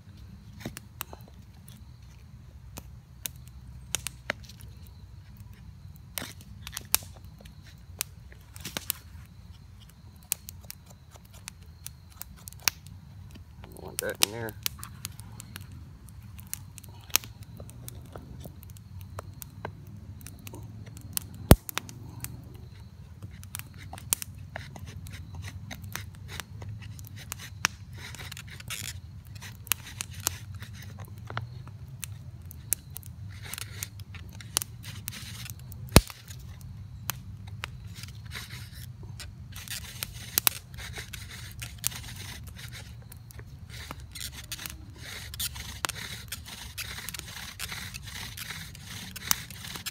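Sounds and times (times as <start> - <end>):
wooden spindle scraping: 39.5 - 49.9.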